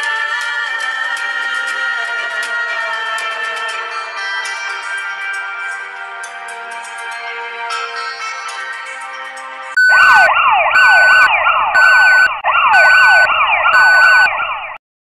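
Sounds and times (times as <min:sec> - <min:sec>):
background music: 0:00.0 - 0:14.2
electronic siren sound effect: 0:09.8 - 0:14.8
steady beep: 0:09.8 - 0:14.8.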